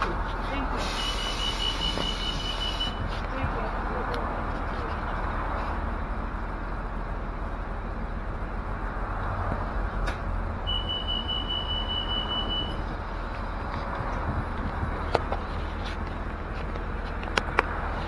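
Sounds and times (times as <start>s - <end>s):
bus engine and road rumble: 0.0s - 18.0s
high steady beep: 1.0s - 3.0s, 10.6s - 12.8s.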